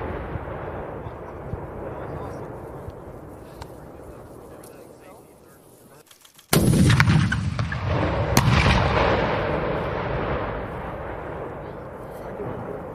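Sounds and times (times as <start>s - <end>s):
rumbling echo: 0.0s - 4.6s, 6.6s - 12.9s
sharp crack of impact: 6.1s - 12.9s
launcher firing blast: 6.5s - 12.9s.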